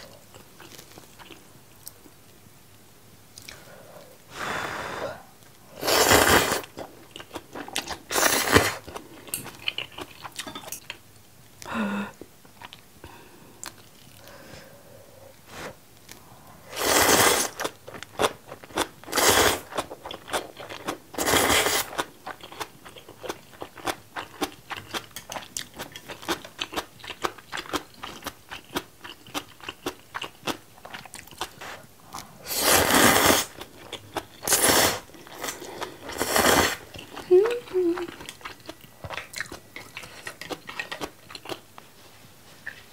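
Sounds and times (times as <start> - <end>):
wet chewing and crunching: 0.0 - 2.1, 5.4 - 11.0, 17.1 - 41.8
noodle slurping: 5.8 - 6.7, 16.7 - 17.8, 32.4 - 33.6, 34.4 - 37.6.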